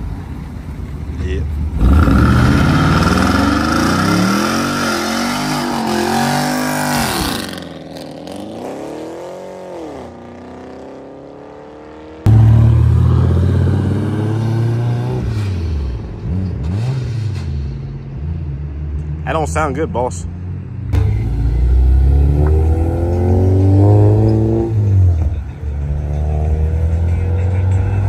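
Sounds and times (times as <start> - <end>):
car engines revving: 0.0 - 28.0.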